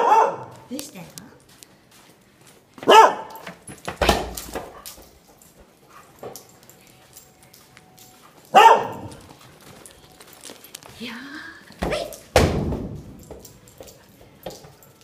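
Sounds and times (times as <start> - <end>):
dog barking: 0.0 - 0.7, 2.8 - 3.4, 8.5 - 9.2.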